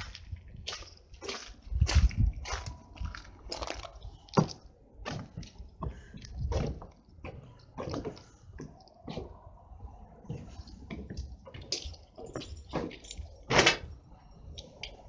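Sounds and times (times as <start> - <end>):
footsteps on gravel: 0.0 - 8.2
footsteps on wooden boards: 0.0 - 9.4, 10.2 - 13.0.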